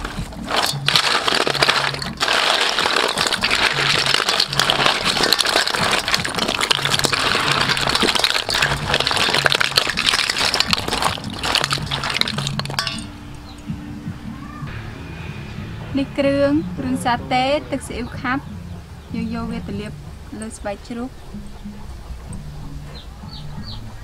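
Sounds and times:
shells rattling in steel bowl: 0.0s - 13.1s.

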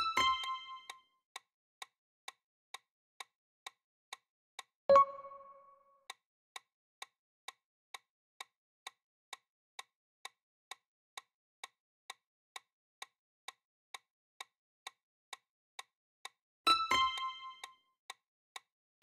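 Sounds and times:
clock ticking: 0.0s - 1.0s, 4.9s - 5.8s, 16.7s - 17.7s
chime ringing: 4.9s - 5.7s.

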